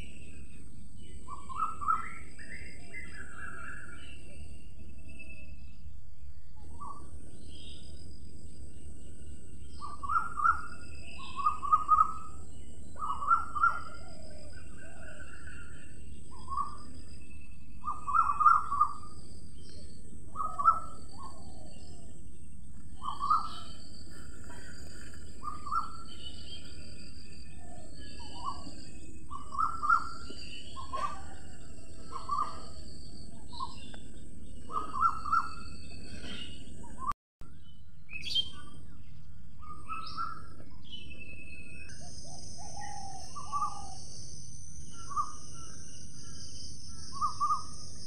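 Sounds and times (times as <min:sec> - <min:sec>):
birds chirping: 0:00.0 - 0:48.0
lower insect drone: 0:00.0 - 0:48.0
high insect drone: 0:10.4 - 0:36.3, 0:41.9 - 0:48.0.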